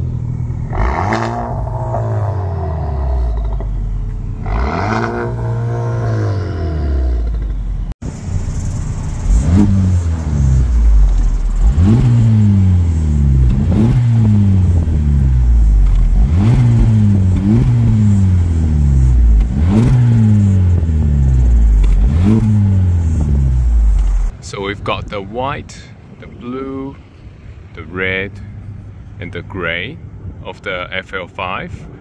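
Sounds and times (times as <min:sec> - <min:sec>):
cars driving past: 0:00.0 - 0:24.4.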